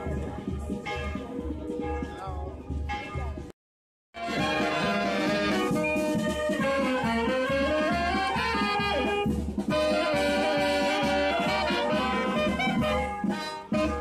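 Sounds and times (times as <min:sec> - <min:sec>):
wind band playing: 0:00.0 - 0:03.5, 0:04.2 - 0:14.0
bass drum beat: 0:04.2 - 0:14.0.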